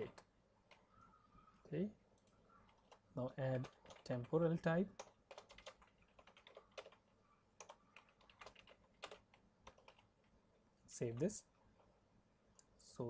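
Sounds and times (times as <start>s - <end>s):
computer keyboard typing: 2.2s - 4.4s, 5.0s - 10.1s.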